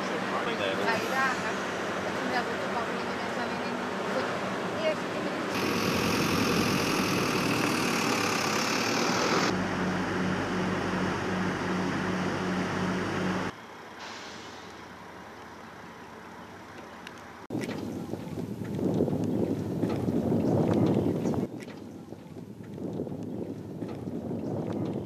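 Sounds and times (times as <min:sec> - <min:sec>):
vehicle engine and road noise: 0:00.0 - 0:25.0
wind buffeting microphone: 0:17.5 - 0:25.0.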